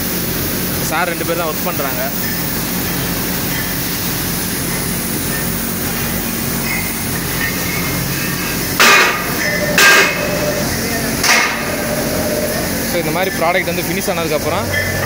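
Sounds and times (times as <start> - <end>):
factory machinery hum: 0.0 - 15.0
loud metallic clanks: 8.7 - 12.9.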